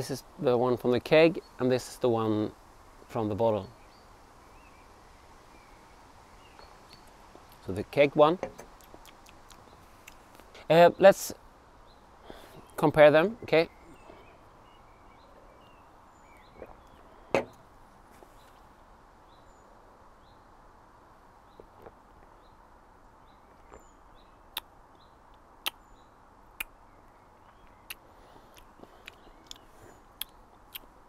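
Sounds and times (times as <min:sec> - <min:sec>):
mouth clicks and lip smacks: 0:08.7 - 0:10.7, 0:24.5 - 0:24.7, 0:25.3 - 0:25.8, 0:26.5 - 0:26.8, 0:27.5 - 0:31.0
faint bird chirps: 0:11.8 - 0:18.7, 0:23.2 - 0:30.9.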